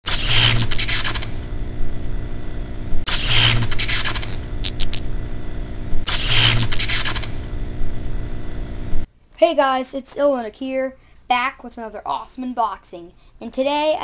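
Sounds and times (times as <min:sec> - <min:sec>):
crackling hissing bursts: 0:00.0 - 0:05.1
quick clicks: 0:00.1 - 0:01.5, 0:03.1 - 0:05.0, 0:06.0 - 0:07.5
low electric hum: 0:00.1 - 0:09.7.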